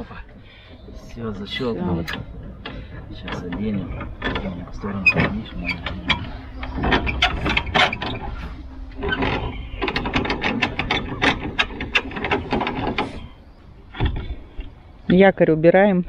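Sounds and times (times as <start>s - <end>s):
hand crank clicking and rattling: 1.0s - 14.7s.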